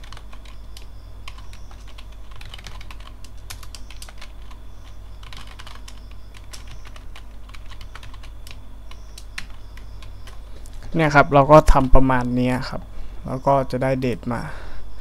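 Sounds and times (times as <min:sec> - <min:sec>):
keyboard keystrokes clicking: 0:00.0 - 0:10.9.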